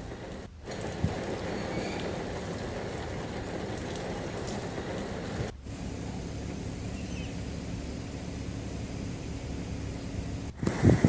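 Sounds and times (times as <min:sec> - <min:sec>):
rain on wet street: 0:00.0 - 0:11.0
rush of wind: 0:10.3 - 0:11.0.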